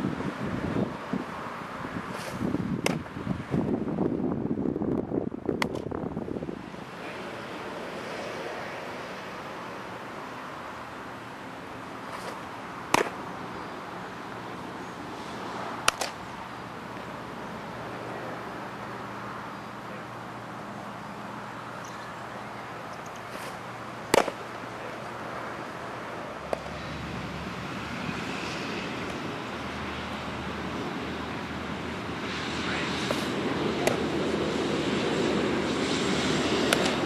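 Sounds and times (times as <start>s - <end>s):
outdoor background noise: 0.0s - 37.0s
baseball smacking into glove: 2.2s - 3.1s, 12.1s - 13.2s, 15.8s - 16.2s, 24.1s - 24.4s, 36.7s - 37.0s.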